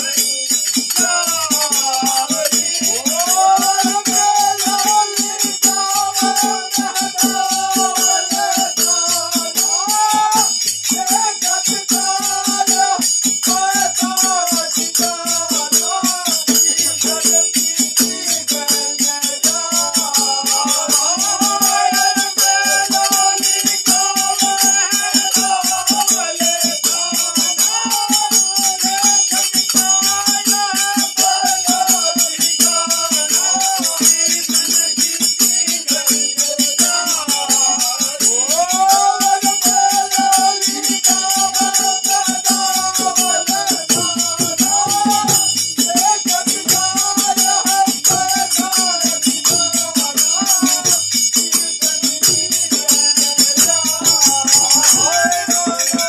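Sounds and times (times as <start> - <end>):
hand drum beat: 0.0 - 56.0
men singing folk song: 0.0 - 56.0
ringing metal percussion: 0.0 - 56.0.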